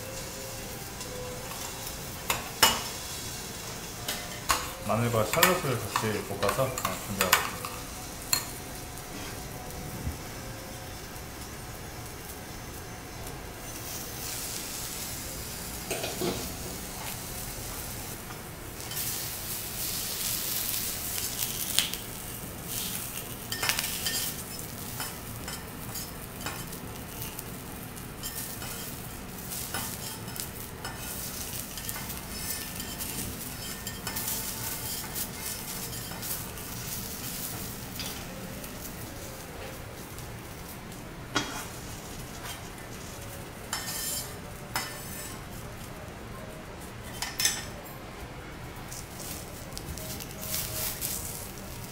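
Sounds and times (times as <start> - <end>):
food sizzling on a griddle: 0.0 - 47.8, 48.9 - 51.9
metal spatulas scraping and clicking: 29.6 - 36.4, 41.3 - 43.1, 43.7 - 45.4, 47.0 - 47.7.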